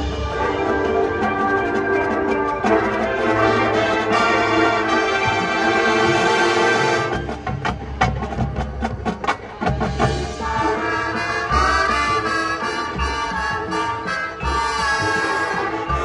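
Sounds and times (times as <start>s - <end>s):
brass held chords: 0.0s - 7.3s.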